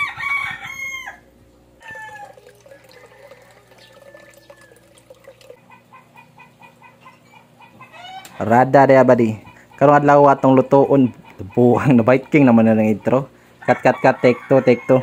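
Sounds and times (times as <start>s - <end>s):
chicken falling call: 1.8s - 6.0s
chickens clucking: 1.8s - 15.0s.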